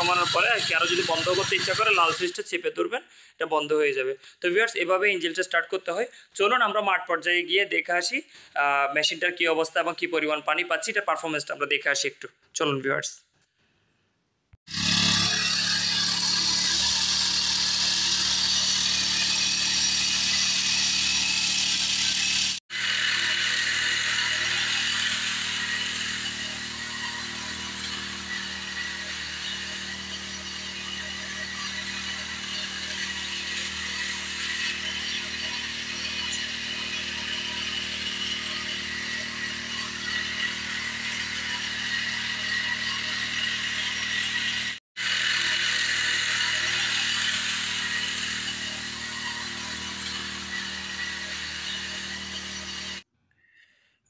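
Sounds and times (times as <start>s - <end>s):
small engine running: 0.0s - 2.3s, 14.6s - 53.1s.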